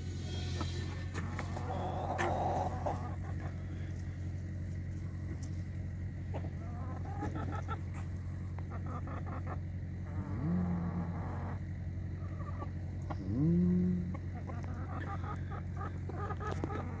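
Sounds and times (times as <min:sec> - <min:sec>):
chickens clucking: 0:00.0 - 0:17.0
low rising call: 0:13.2 - 0:14.3.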